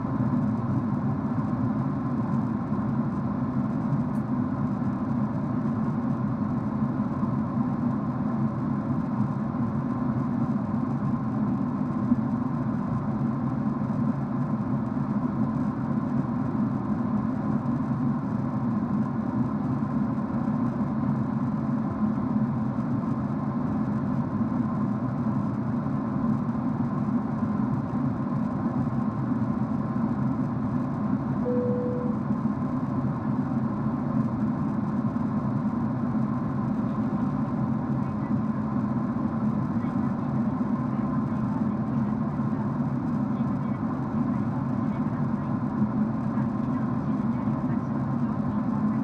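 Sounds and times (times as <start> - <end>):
jet cabin engine drone: 0.0 - 49.0
thin steady tone: 31.4 - 32.3.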